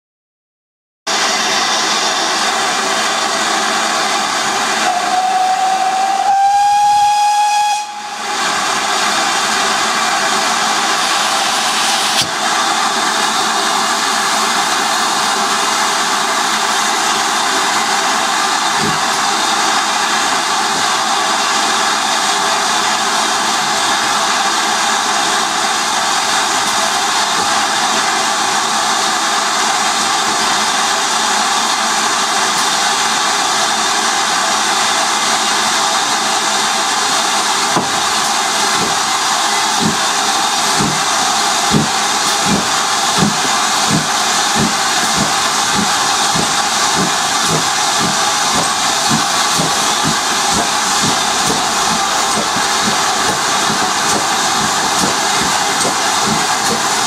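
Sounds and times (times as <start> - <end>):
steam hissing: 1.1 - 57.0
steam whistle: 4.7 - 8.8.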